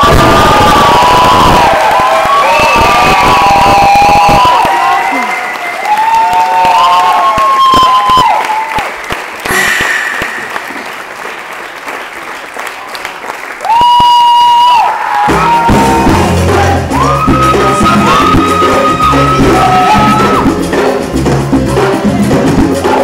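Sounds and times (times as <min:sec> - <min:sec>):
crowd applause and cheering: 0:00.0 - 0:23.0
latin percussion music: 0:09.4 - 0:11.8, 0:15.2 - 0:23.0
high whistle blast: 0:09.5 - 0:11.0.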